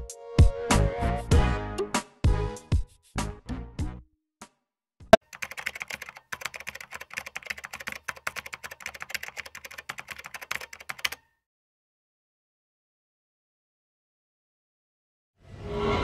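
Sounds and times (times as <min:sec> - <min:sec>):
keyboard typing clicks: 0:05.2 - 0:11.2.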